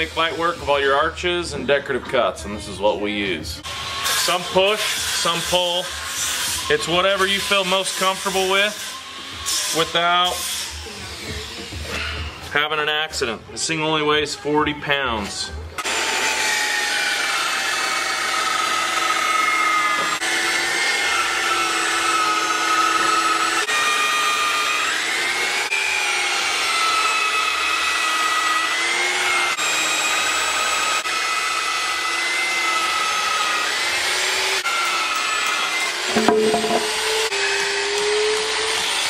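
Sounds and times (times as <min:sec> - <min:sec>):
band saw cutting timber: 0:15.8 - 0:39.0.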